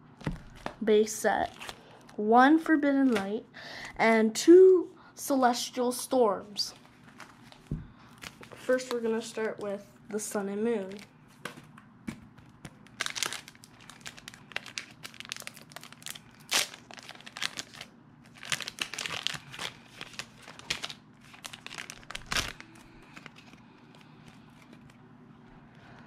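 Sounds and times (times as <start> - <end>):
foil wrapper crinkling and tearing: 1.4 - 2.2, 7.1 - 9.7, 10.8 - 11.1, 12.7 - 25.0.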